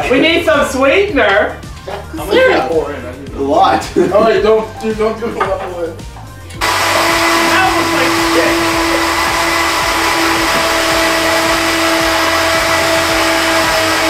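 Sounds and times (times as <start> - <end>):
blender motor whining: 6.6 - 14.0.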